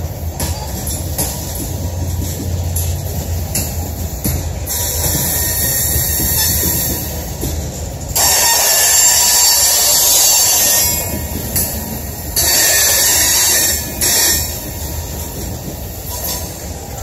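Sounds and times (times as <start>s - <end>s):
low rumble of rolling cars: 0.0s - 17.0s
steel wheels squealing on rail: 0.0s - 17.0s.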